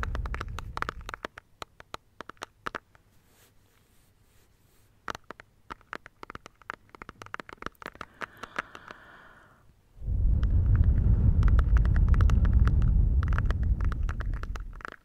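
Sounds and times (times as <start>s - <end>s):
fingers tapping on plastic: 0.0s - 3.0s, 5.0s - 9.1s, 11.4s - 15.0s
loud low rumbling: 10.0s - 14.9s.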